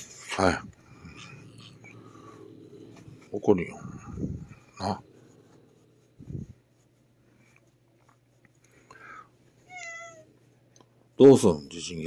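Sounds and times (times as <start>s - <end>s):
soft low sound: 0.4s - 7.5s
cat meowing: 9.7s - 10.3s.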